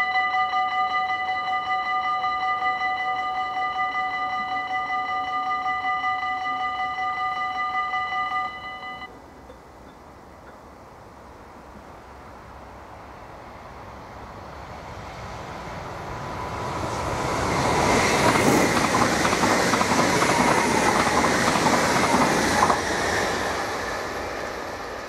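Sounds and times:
steady high tone: 0:00.0 - 0:09.2
electric train passing: 0:00.0 - 0:25.0
wheels clattering over rail joints: 0:17.7 - 0:23.8.

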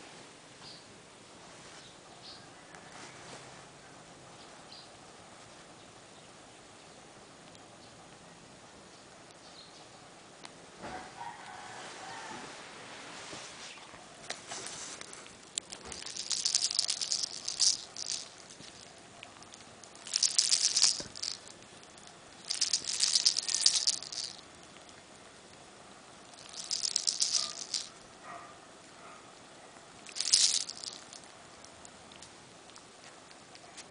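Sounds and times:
kitten rustling: 0:13.0 - 0:25.0, 0:26.2 - 0:28.5, 0:30.0 - 0:33.9.

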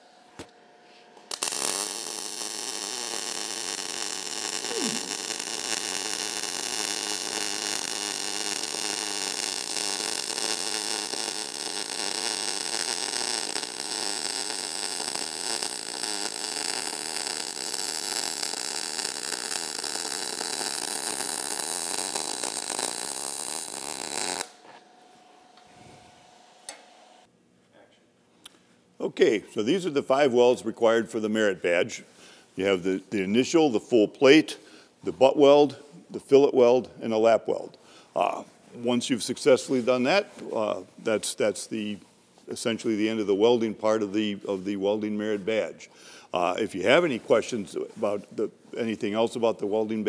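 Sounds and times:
welding arc crackling: 0:01.2 - 0:24.6.

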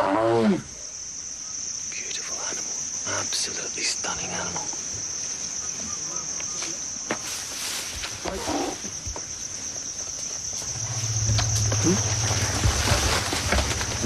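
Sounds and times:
crickets chirring: 0:00.0 - 0:14.0
low steady rumble: 0:10.6 - 0:13.9.

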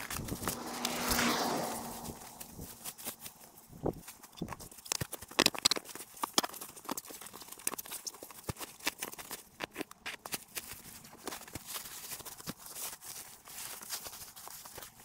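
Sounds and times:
rustling: 0:00.0 - 0:15.0.

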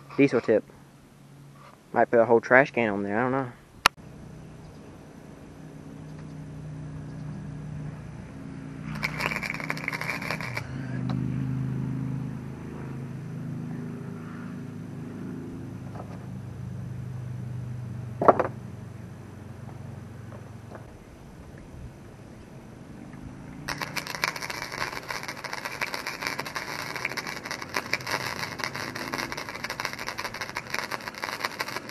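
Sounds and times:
welding arc crackle: 0:08.8 - 0:10.8, 0:23.7 - 0:31.9
sharp clack: 0:08.9 - 0:10.7.

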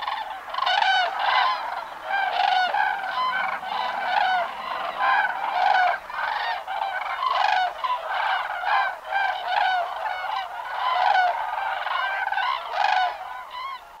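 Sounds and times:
cranes honking: 0:00.0 - 0:13.9.

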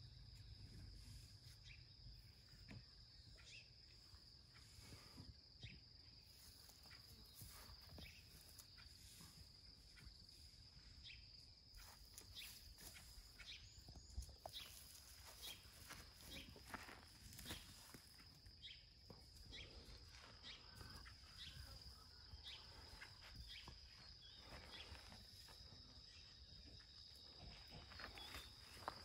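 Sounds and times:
high-pitched insect trill: 0:00.0 - 0:29.0
footsteps on grass: 0:11.8 - 0:26.2, 0:27.5 - 0:29.0.

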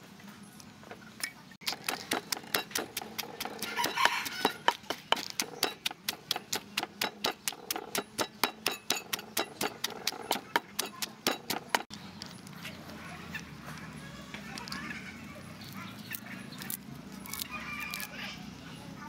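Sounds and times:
pestle pounding in a mortar: 0:01.6 - 0:11.9.

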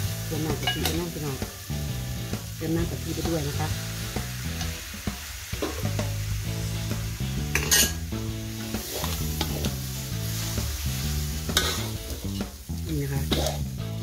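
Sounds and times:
low background music: 0:00.0 - 0:14.0
steady sizzle: 0:00.0 - 0:14.0
metal spatula scraping wok: 0:07.4 - 0:13.7.

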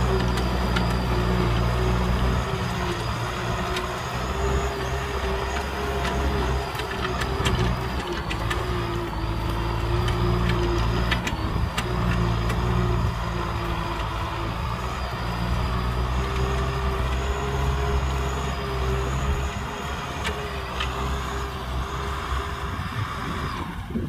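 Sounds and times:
tractor diesel engine running: 0:00.0 - 0:24.0
sharp clicks: 0:03.0 - 0:14.2.

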